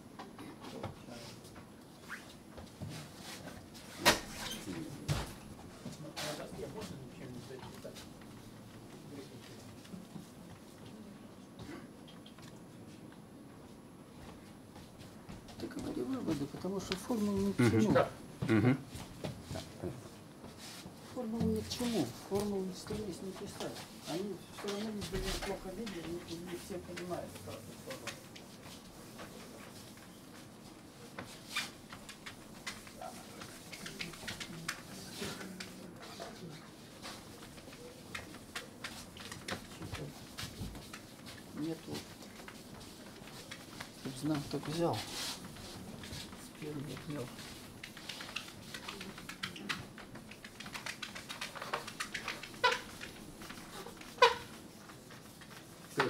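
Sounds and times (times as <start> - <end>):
marker squeaks: 2.0 - 2.4, 51.3 - 55.3
marker tapping and scraping whiteboard: 31.1 - 35.8, 36.7 - 56.0.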